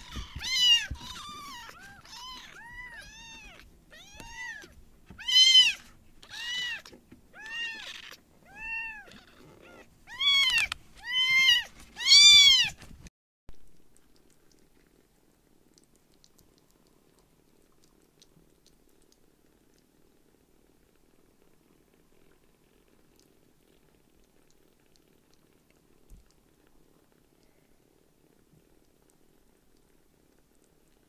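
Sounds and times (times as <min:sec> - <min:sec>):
kitten mewing: 0:00.0 - 0:06.8.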